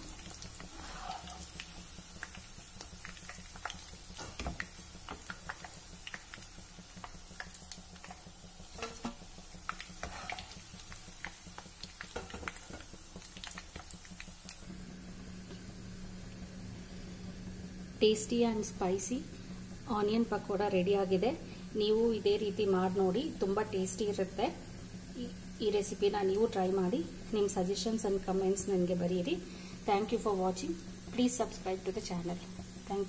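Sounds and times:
fritters crackling in hot oil: 0:00.0 - 0:14.7.

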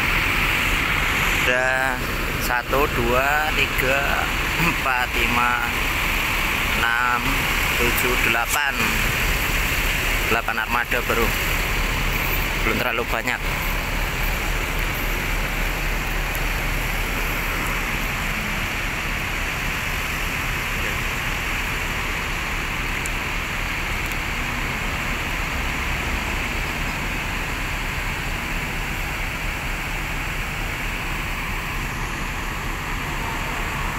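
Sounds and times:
buses idling: 0:00.0 - 0:33.9.

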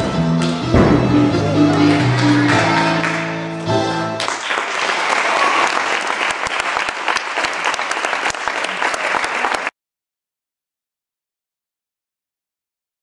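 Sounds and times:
gymnastics routine music: 0:00.0 - 0:04.3
audience applause: 0:01.7 - 0:03.4, 0:04.2 - 0:09.7.

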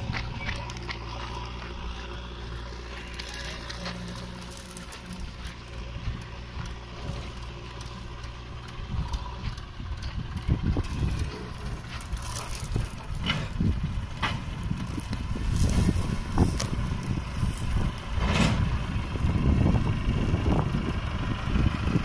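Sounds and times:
tractor diesel engine running: 0:00.0 - 0:22.0
low rumbling and knocks: 0:03.7 - 0:20.9.

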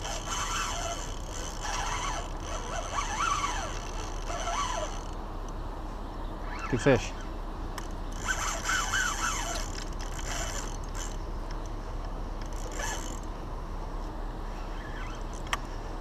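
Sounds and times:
fishing reel clicking and ratcheting: 0:00.0 - 0:05.2, 0:07.8 - 0:11.2, 0:12.4 - 0:13.3.

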